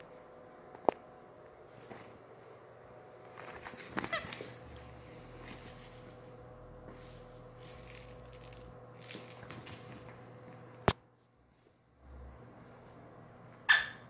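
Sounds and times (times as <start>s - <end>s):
steady room hum: 0.0s - 14.0s
small dogs scuffling: 3.2s - 6.3s, 6.9s - 10.2s.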